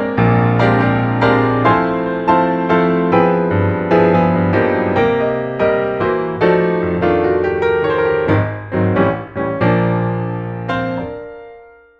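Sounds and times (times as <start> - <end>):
piano music: 0.0 - 11.9.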